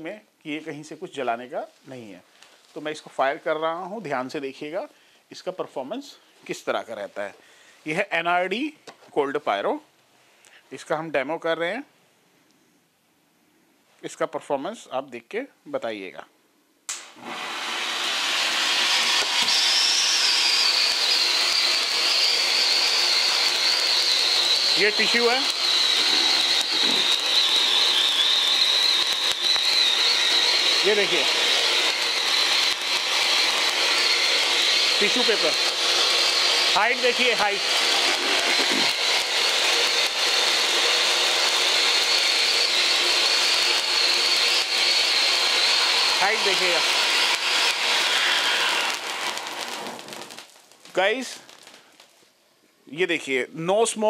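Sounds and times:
spark fountain hissing: 0:18.0 - 0:52.0.

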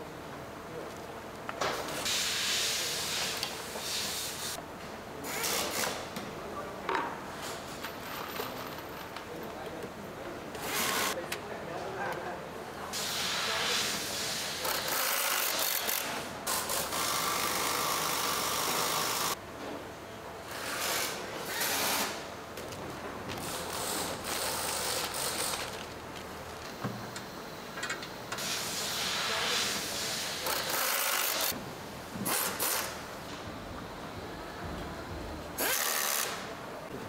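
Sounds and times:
mechanical hissing and rubbing: 0:02.0 - 0:04.6, 0:12.9 - 0:15.6, 0:28.3 - 0:31.6.

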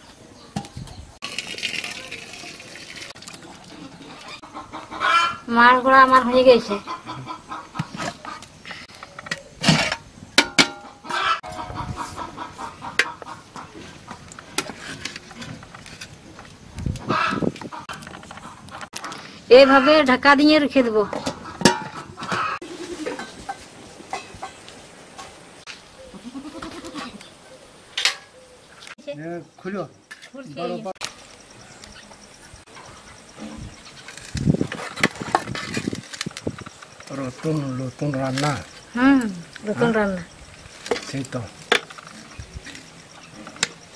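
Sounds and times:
hens clucking: 0:02.5 - 0:09.8, 0:10.7 - 0:15.5, 0:16.8 - 0:25.4, 0:26.0 - 0:27.4
metal pots knocking and clinking: 0:09.1 - 0:13.3, 0:21.1 - 0:24.6, 0:40.8 - 0:43.8
crickets chirping: 0:23.1 - 0:43.9.

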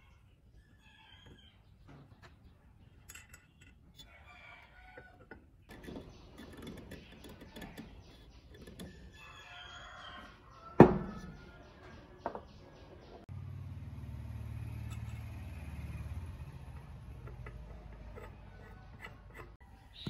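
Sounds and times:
metal housing knocking on wood: 0:10.8 - 0:11.4
light scrapes and clicks: 0:16.7 - 0:19.6.

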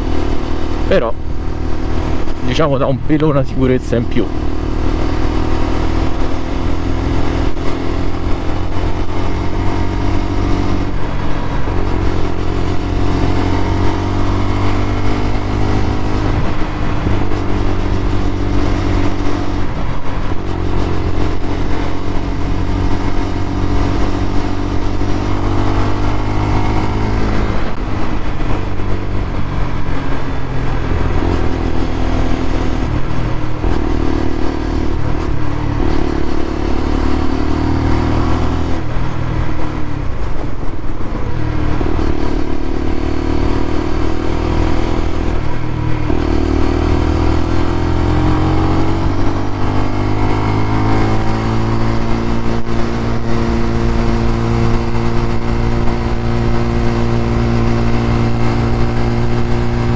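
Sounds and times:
motorcycle engine accelerating: 0:00.0 - 0:59.9
wind noise on microphone: 0:16.2 - 0:21.2.

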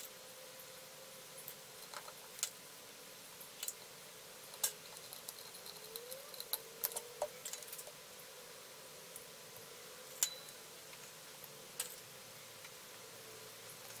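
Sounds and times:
faint steady hum: 0:00.0 - 0:14.0
small metal parts clinking: 0:04.5 - 0:07.9.

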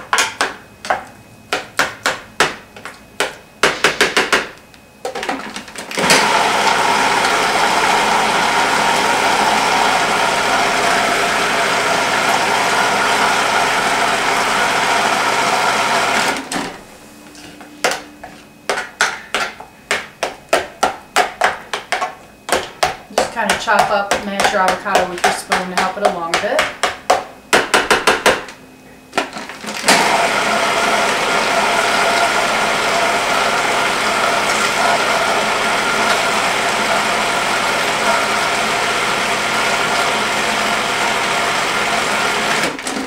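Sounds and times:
food processor motor running: 0:05.9 - 0:16.5, 0:29.7 - 0:43.0.

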